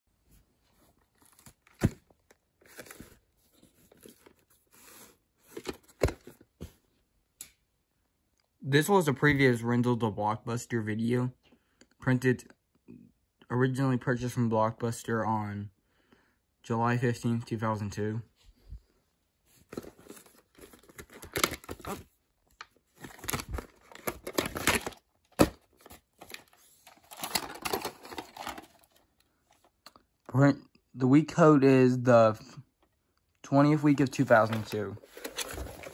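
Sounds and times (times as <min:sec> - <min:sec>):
plastic case rustling on cloth: 0:19.5 - 0:22.1, 0:22.9 - 0:29.0, 0:33.8 - 0:35.9.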